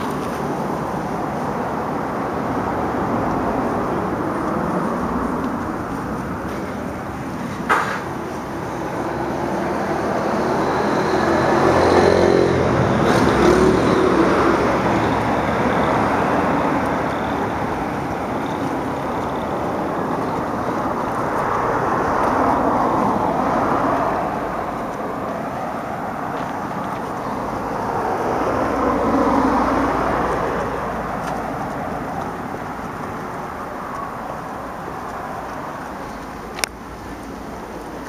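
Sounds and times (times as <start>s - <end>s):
cars passing on road: 0.0s - 38.0s.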